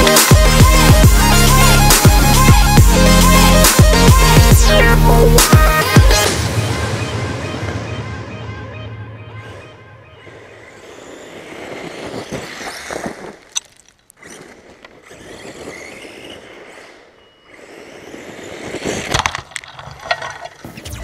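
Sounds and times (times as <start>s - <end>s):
rc car on wood chips: 0.0s - 6.3s, 10.2s - 21.0s
wood chips striking car: 18.0s - 20.8s.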